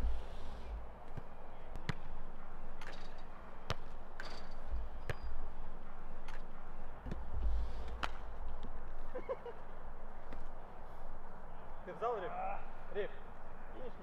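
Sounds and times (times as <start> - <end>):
footballs striking a rebound net: 2.8 - 5.3, 7.9 - 8.3.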